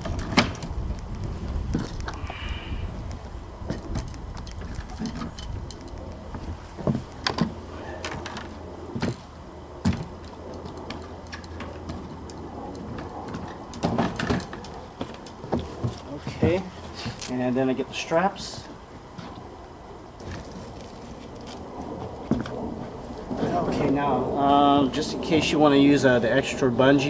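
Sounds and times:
fishing rods knocking and clattering: 3.7 - 6.1
footsteps on plywood deck: 6.3 - 7.6, 15.0 - 17.3.

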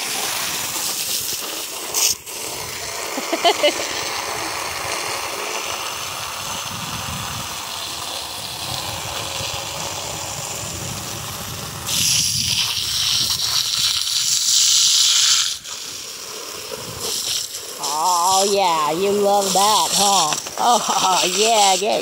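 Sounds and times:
hissing water spray: 0.0 - 22.0
hose water splashing into pool: 0.0 - 22.0.

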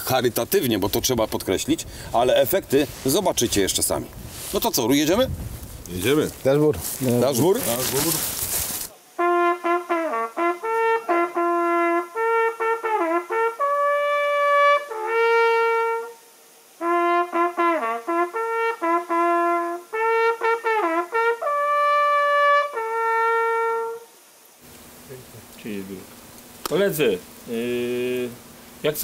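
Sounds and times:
hunting horn playing: 9.2 - 24.1.

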